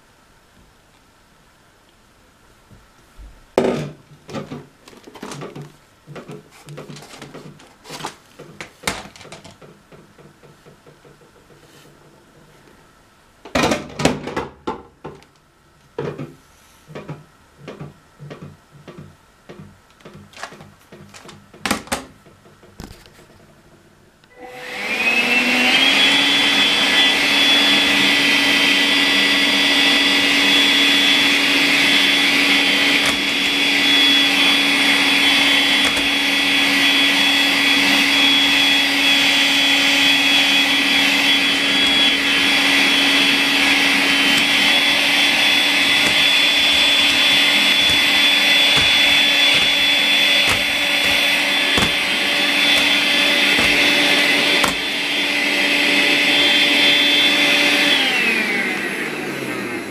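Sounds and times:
stick vacuum running with high whine: 24.3s - 59.9s.

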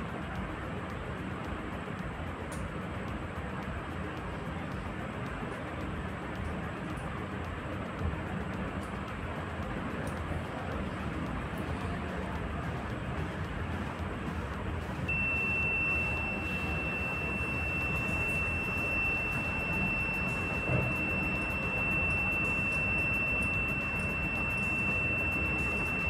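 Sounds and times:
high-pitched buzzer beep: 15.1s - 26.0s.

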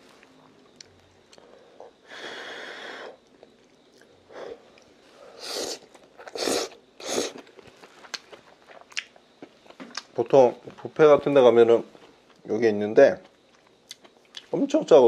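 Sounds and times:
person slurping noodles: 5.4s - 7.4s.

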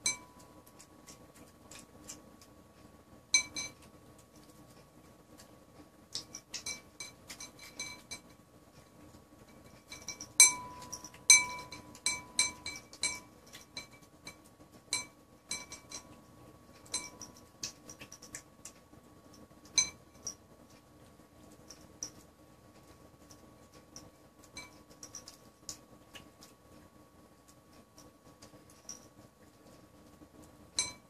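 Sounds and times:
clinking against ceramic bowl: 0.0s - 0.4s, 3.4s - 3.8s, 6.2s - 8.3s, 9.5s - 16.2s, 16.8s - 18.2s, 19.7s - 20.4s, 24.0s - 25.4s, 30.8s - 31.0s
cat eating from a bowl: 0.0s - 31.0s.

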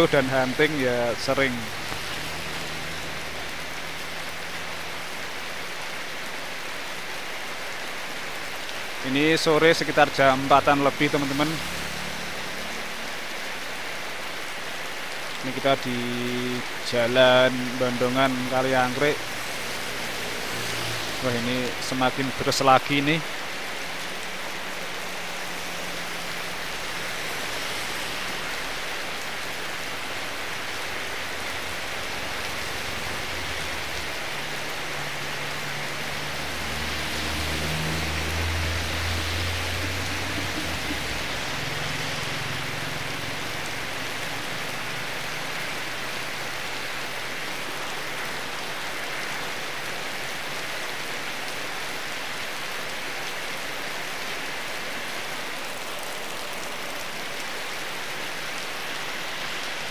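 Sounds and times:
heavy rain on road and awning: 0.0s - 59.9s
minibus driving past: 31.1s - 46.5s.

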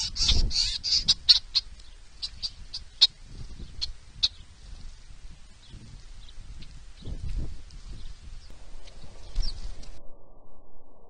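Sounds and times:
birds chip calls: 0.0s - 4.8s.

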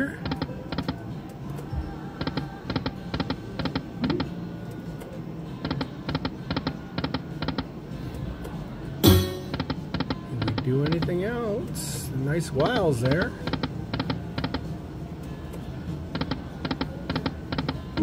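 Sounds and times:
background music: 0.0s - 18.0s
slot machine reels ticking: 9.0s - 11.4s, 12.7s - 14.6s.

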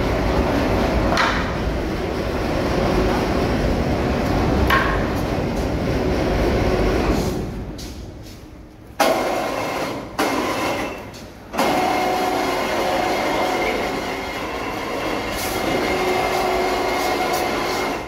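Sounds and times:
electric hoist whine: 9.0s - 18.0s.

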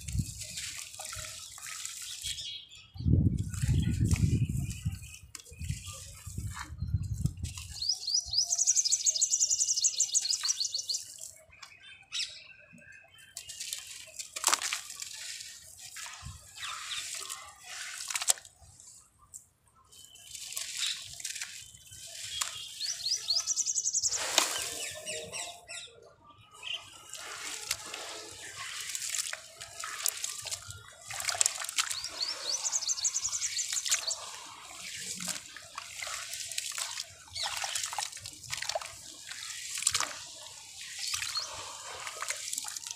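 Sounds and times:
gritty crunching of wet cement: 0.0s - 2.6s, 13.1s - 25.6s, 26.6s - 42.9s.

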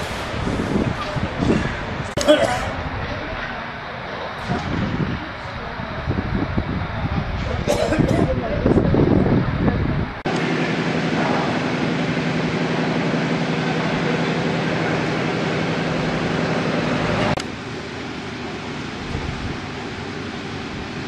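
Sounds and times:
street hum: 0.0s - 21.0s
vehicle engine idling: 10.3s - 21.0s.

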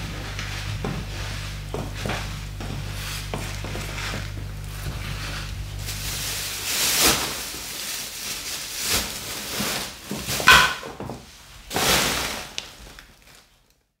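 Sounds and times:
plastic bag rustling and crinkling: 0.0s - 14.0s
high heels knocking on floor: 0.7s - 5.0s.

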